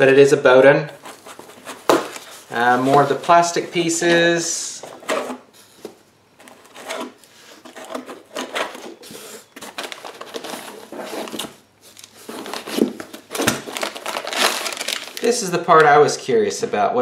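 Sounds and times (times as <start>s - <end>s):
rustling in foam-packed box: 1.0s - 15.3s
plastic and metal pieces clattering: 9.6s - 15.3s.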